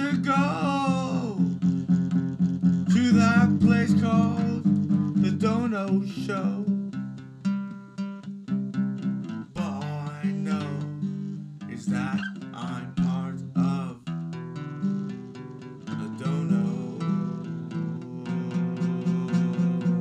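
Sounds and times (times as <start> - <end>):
person singing: 0.0 - 1.6, 2.8 - 6.8, 9.5 - 14.1, 15.8 - 20.0
strummed acoustic guitar: 0.0 - 20.0.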